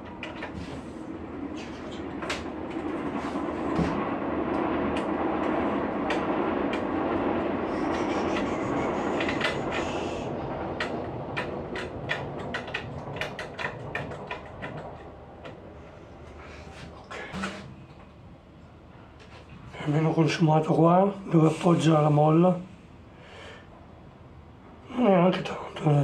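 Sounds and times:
sharp clicks and knocks: 0.0s - 0.6s, 7.9s - 10.0s, 10.8s - 15.6s.

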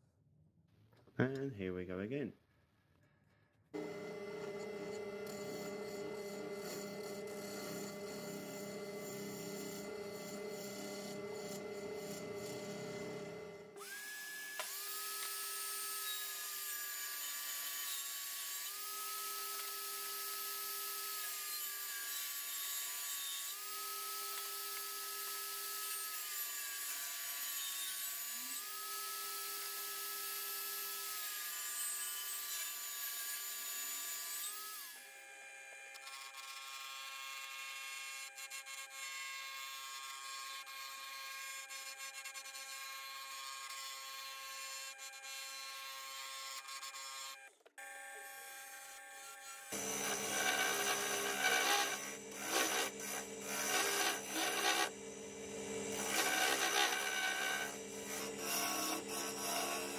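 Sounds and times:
wood lathe humming: 3.8s - 14.0s, 49.7s - 59.9s
table saw cutting wood: 3.8s - 59.9s
gouge scraping wood: 49.8s - 55.0s, 56.0s - 59.9s.

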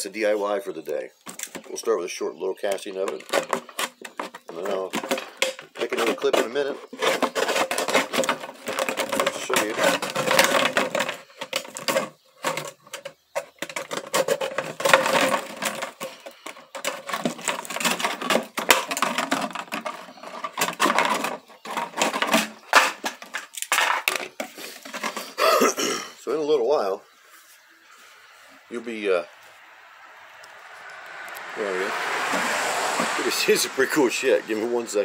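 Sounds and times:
plastic jug crackling: 2.6s - 26.0s.

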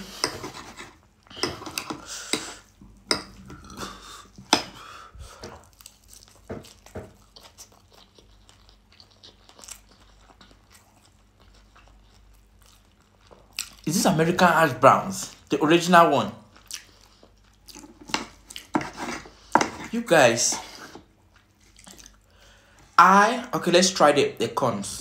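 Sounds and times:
close chewing: 5.4s - 13.9s, 16.5s - 18.8s, 21.2s - 22.3s.

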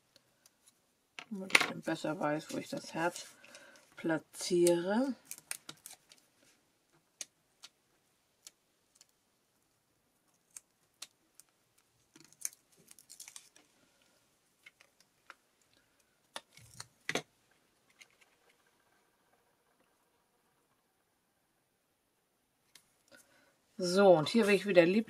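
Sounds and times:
small clicks and paper rustles: 0.1s - 20.0s.

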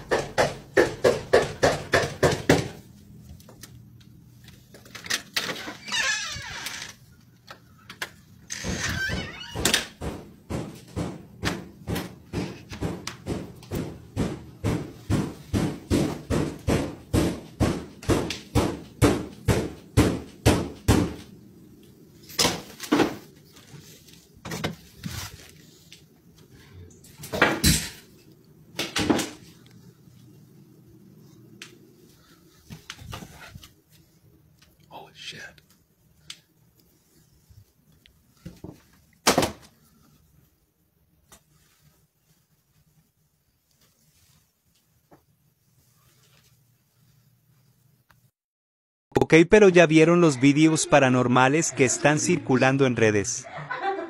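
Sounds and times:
heavy knocking on a door: 0.0s - 2.8s, 10.0s - 21.2s.

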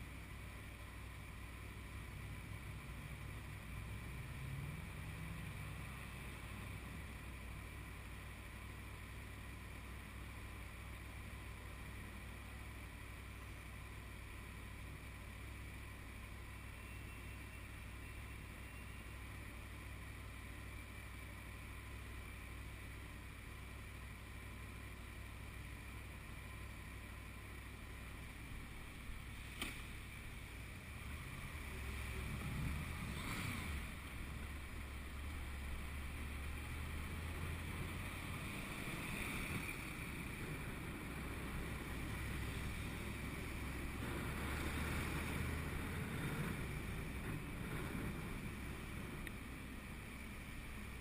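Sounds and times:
muffled motorcycle engine: 0.0s - 51.0s
wind rush on microphone: 38.6s - 49.5s.

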